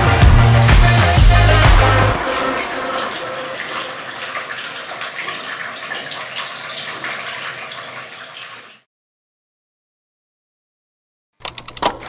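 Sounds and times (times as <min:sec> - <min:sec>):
water splashing in fountain: 0:00.8 - 0:08.8.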